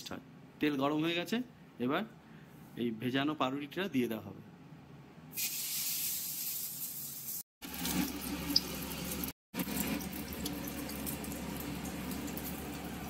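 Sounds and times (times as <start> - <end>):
bread frying in oil: 5.4 - 13.0.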